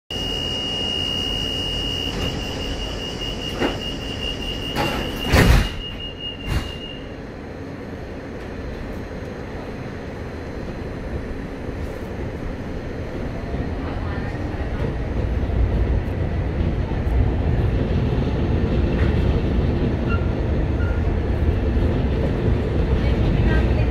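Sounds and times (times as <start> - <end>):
steady high tone: 0.1 - 5.2
tram low hum: 0.1 - 23.9
tram doors closing thump: 3.4 - 7.1.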